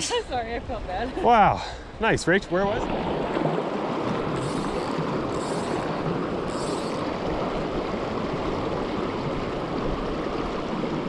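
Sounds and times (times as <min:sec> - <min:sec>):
creek rushing over rocks: 0:02.4 - 0:11.0.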